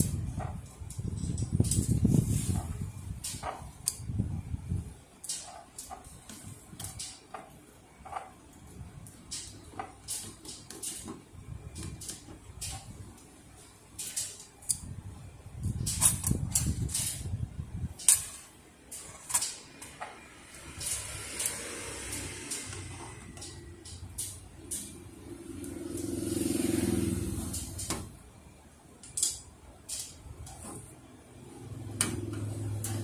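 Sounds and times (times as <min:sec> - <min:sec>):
metal parts clicking and tapping: 0:00.0 - 0:04.2, 0:05.1 - 0:14.9, 0:15.6 - 0:26.1, 0:29.0 - 0:30.8.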